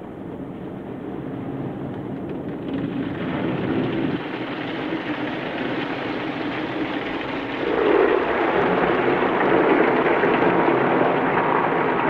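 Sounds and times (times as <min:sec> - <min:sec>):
car wash brushes rumbling: 0:02.5 - 0:12.0.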